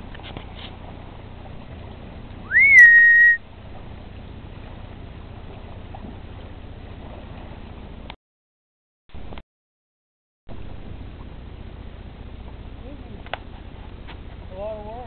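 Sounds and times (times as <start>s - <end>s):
person whistling: 2.5s - 3.4s.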